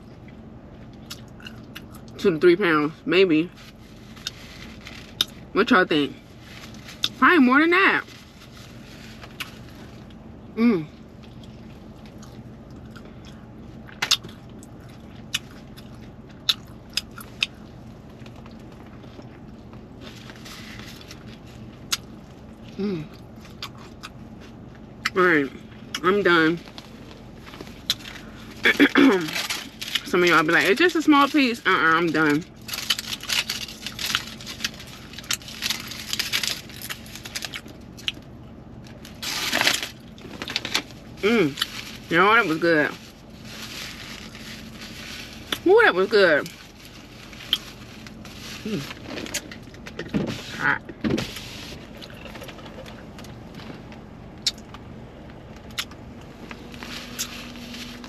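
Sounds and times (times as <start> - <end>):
aluminium foil crinkling: 3.5 - 5.4, 6.2 - 10.2, 18.1 - 21.9, 26.5 - 50.6, 56.4 - 58.0
person chewing food: 11.2 - 17.6, 51.8 - 53.7.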